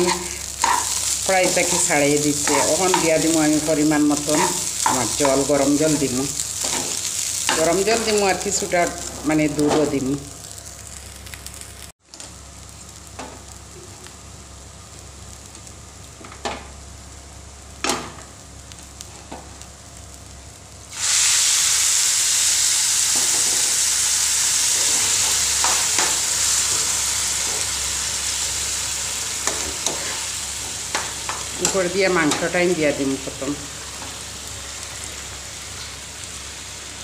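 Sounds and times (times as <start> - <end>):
spoon scraping pan: 0.0 - 3.2
rice sizzling in a pan: 0.0 - 37.0.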